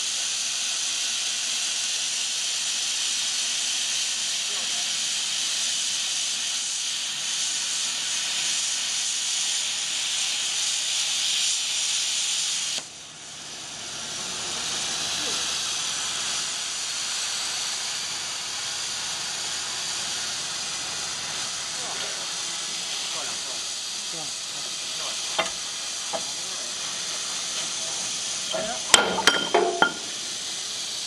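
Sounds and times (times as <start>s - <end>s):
plasma torch cutting steel pipe: 0.0s - 31.0s.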